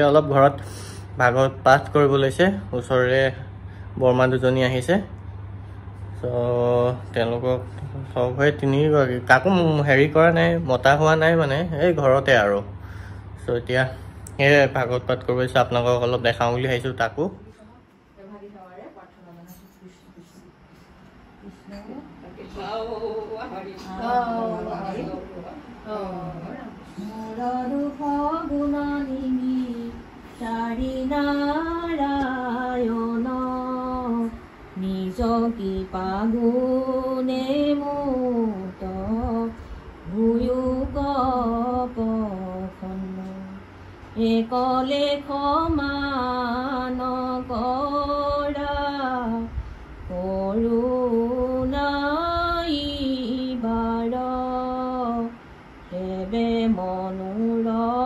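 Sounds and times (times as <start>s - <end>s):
women singing devotional chant: 22.2s - 58.0s.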